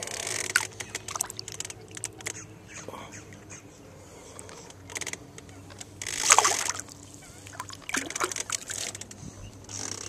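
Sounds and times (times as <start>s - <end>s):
water splashing: 0.5s - 2.2s, 6.1s - 8.9s.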